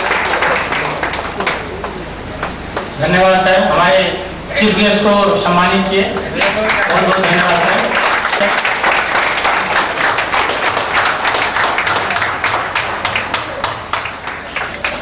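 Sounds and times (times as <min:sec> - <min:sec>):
audience applauding: 0:00.0 - 0:02.9, 0:06.3 - 0:15.0.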